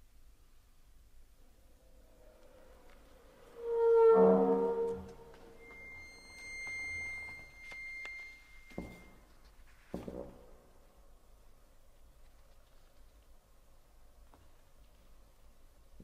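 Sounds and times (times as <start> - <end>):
thin high tone: 3.6 - 9.2.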